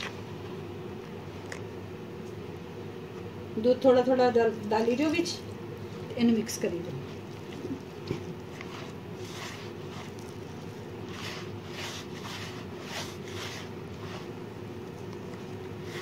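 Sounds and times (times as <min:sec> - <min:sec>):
steady low hum: 0:00.0 - 0:16.0
hands kneading dough in a bowl: 0:06.3 - 0:16.0.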